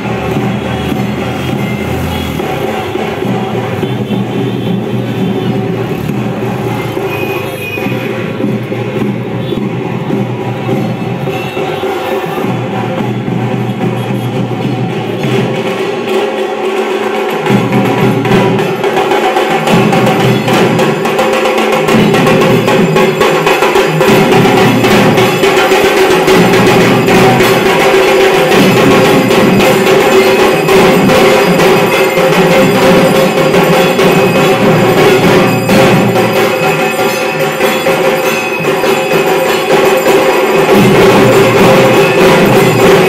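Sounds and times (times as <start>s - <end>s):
loud drumming and percussion music: 0.0s - 43.0s.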